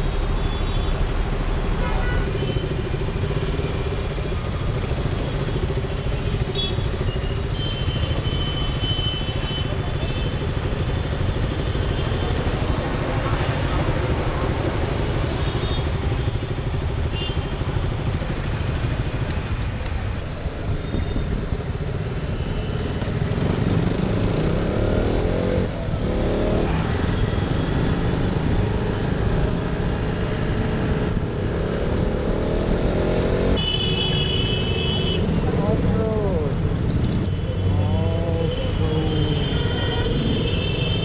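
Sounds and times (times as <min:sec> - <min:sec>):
motorcycle engine revving: 0:23.2 - 0:33.7.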